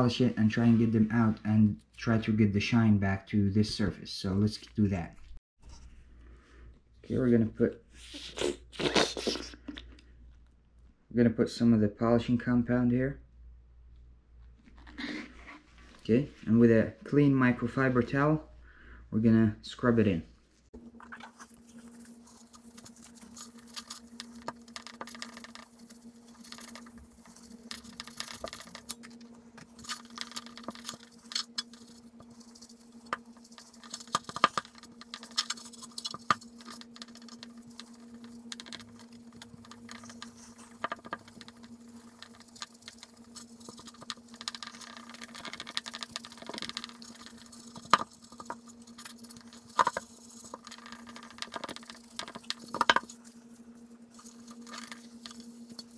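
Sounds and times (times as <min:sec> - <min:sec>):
small clicks and ticks: 0:21.2 - 0:55.9.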